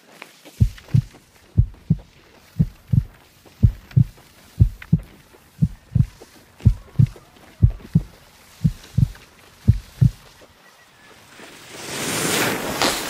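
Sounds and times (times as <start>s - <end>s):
low double thumps: 0.6s - 10.2s.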